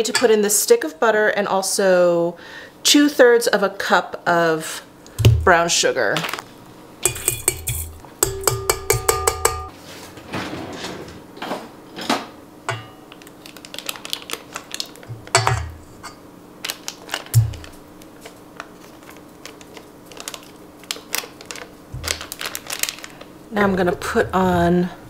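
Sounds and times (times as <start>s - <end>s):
measuring cup tapping steel bowl: 7.1s - 9.7s
butter wrapper rustling: 13.1s - 15.1s, 16.6s - 24.6s.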